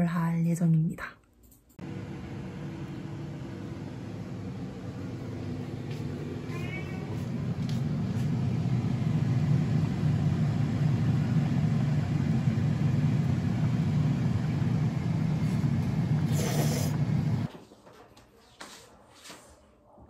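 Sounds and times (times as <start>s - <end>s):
kitchen noise low rumble: 1.8s - 17.5s.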